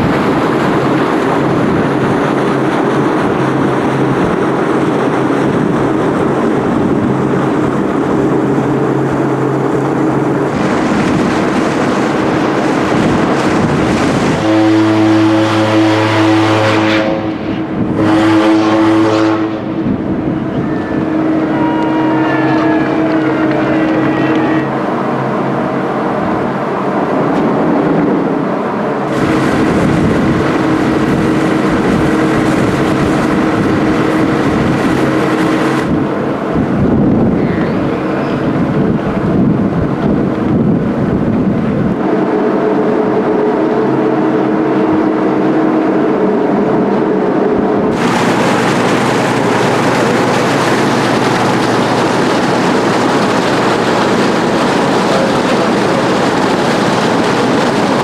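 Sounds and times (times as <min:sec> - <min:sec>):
ship deck rumbling hiss: 0:47.8 - 0:58.0.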